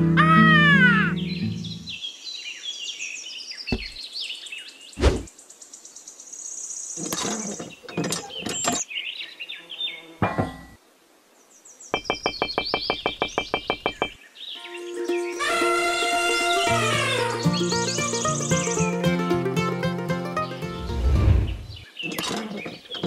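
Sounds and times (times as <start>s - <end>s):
sharp knocks: 12.0s - 14.2s
small high bird chirps: 16.9s - 18.9s.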